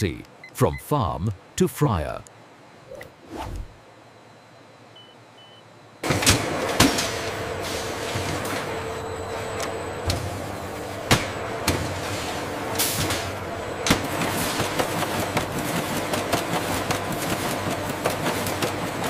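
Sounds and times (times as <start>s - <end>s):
factory machinery running: 6.0s - 19.0s.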